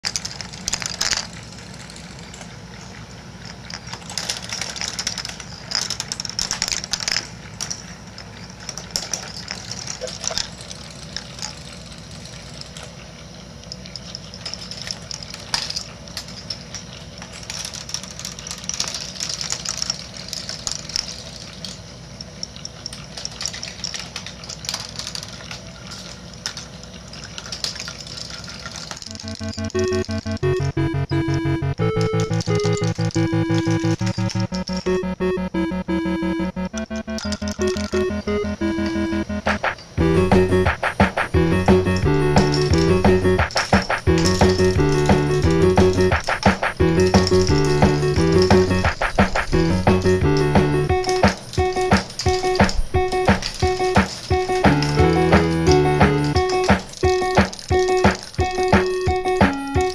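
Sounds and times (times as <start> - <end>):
plastic balls clattering: 0.0 - 13.0, 13.7 - 59.9
motor-driven gears humming: 29.0 - 59.3.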